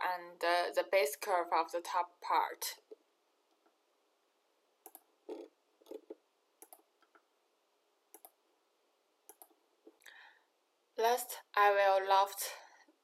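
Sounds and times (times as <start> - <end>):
faint mouse clicks: 4.8 - 7.3, 8.1 - 8.4, 9.3 - 10.2.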